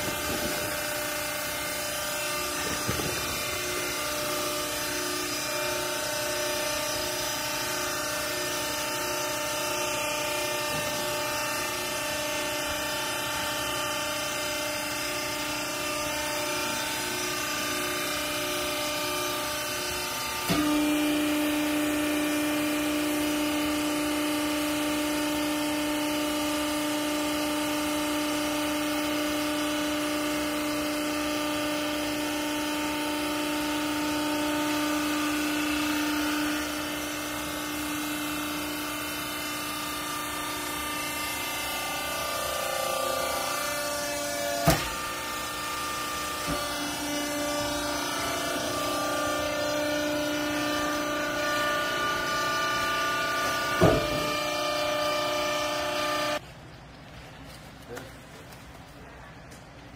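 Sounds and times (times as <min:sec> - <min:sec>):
hydraulic pump humming: 0:00.0 - 0:56.8.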